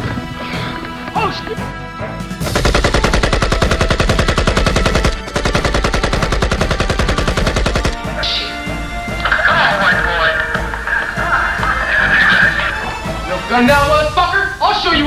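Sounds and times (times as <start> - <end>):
automatic rifle fire: 2.5 - 8.0.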